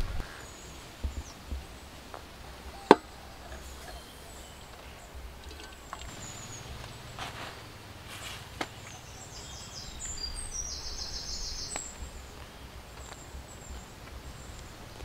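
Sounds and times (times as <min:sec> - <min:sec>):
faint bird chirps: 0:02.4 - 0:07.7, 0:08.7 - 0:14.6.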